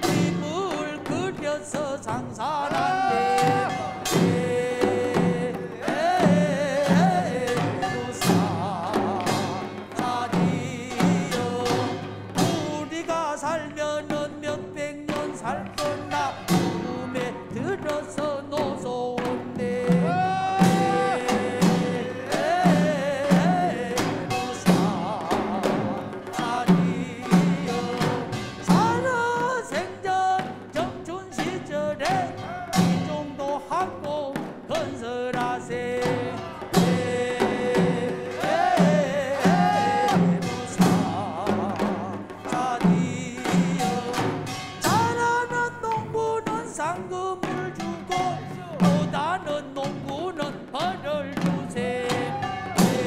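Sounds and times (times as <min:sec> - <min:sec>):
group of voices singing: 0:00.0 - 0:13.2, 0:15.1 - 0:46.4, 0:50.7 - 0:53.0
barrel drums beating: 0:00.0 - 0:53.0.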